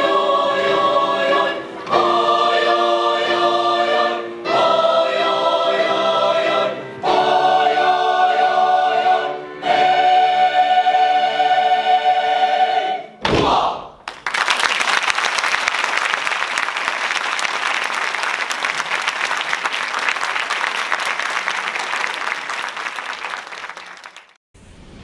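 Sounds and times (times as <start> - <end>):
choir holding a chord: 0.0 - 13.8
audience applauding: 14.0 - 24.4.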